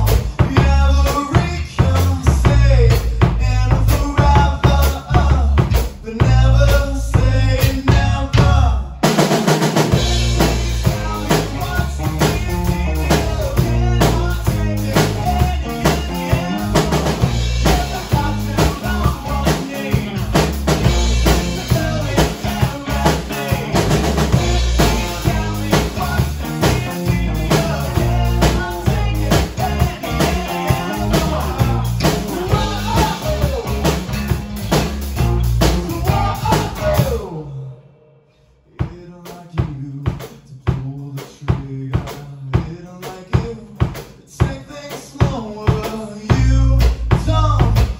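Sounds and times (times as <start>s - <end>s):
drum kit kick and snare: 0.0s - 37.3s, 38.8s - 47.9s
electric bass: 0.0s - 37.4s, 46.3s - 47.9s
electric guitar: 9.7s - 37.4s.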